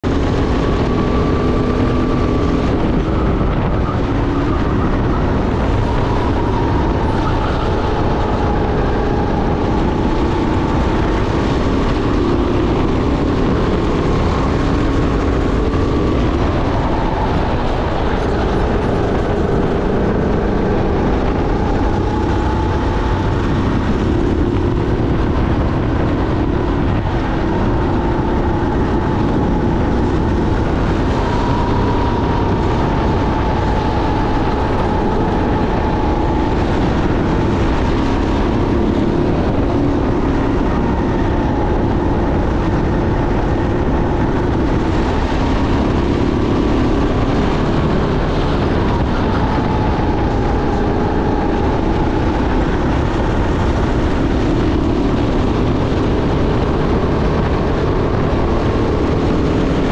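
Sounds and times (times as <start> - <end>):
kart engine running: 0.0 - 59.9
wind and road rush: 0.0 - 59.9.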